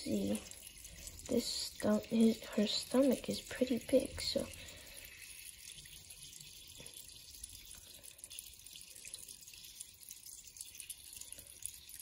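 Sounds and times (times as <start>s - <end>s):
aquarium filter water trickling: 0.0s - 12.0s.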